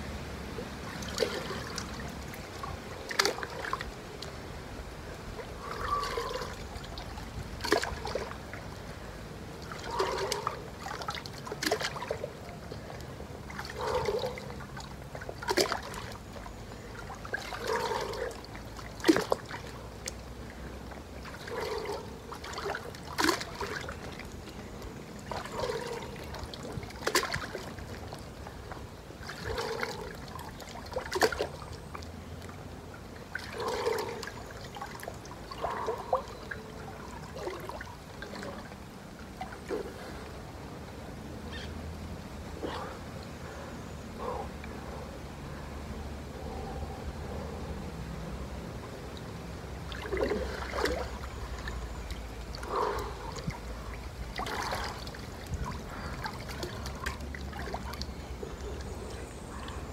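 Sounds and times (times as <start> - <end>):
water sloshing in a pool: 0.0 - 59.9
water slaps: 0.8 - 4.4, 5.4 - 8.7, 9.6 - 20.3, 21.2 - 28.3, 29.2 - 32.6, 33.3 - 38.8, 49.8 - 59.7.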